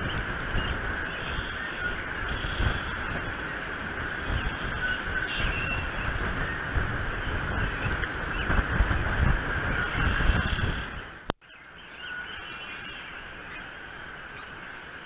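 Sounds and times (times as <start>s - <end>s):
wind buffeting microphone: 0.0s - 11.3s
steady wind hiss: 0.0s - 15.0s.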